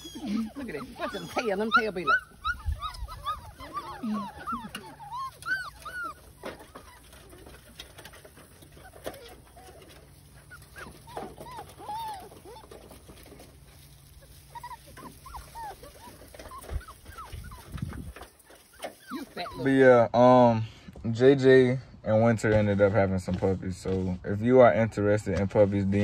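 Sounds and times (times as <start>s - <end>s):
puppies whimpering and squealing: 0.0s - 20.2s.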